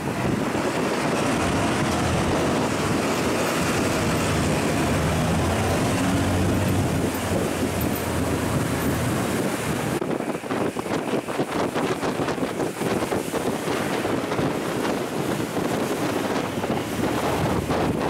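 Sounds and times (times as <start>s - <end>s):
diesel engine droning: 0.0s - 10.0s
rushing water: 0.0s - 18.0s
wind noise: 0.0s - 18.0s.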